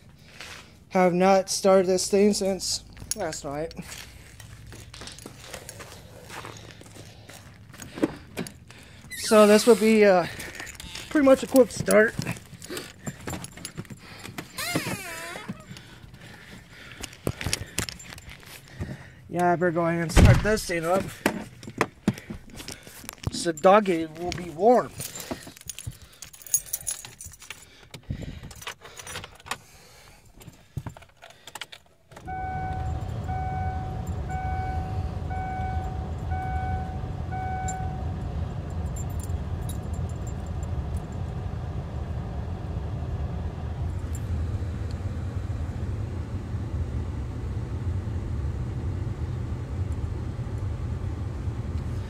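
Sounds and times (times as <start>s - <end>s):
car keys jangling in ignition: 2.4s - 19.4s, 20.4s - 42.3s, 43.8s - 44.6s
dashboard warning chime beeping: 32.2s - 41.2s.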